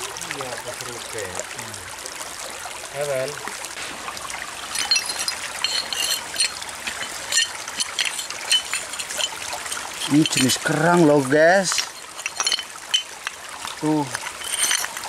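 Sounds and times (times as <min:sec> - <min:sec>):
stream trickling: 0:00.0 - 0:15.0
shells and stones scraped: 0:04.6 - 0:10.9, 0:11.6 - 0:15.0.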